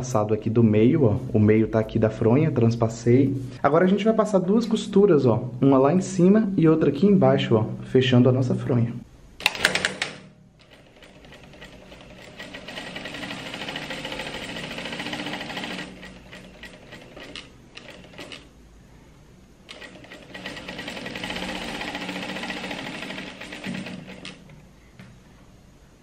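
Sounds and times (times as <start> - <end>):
sewing machine stitching: 9.4 - 18.5, 19.7 - 24.4.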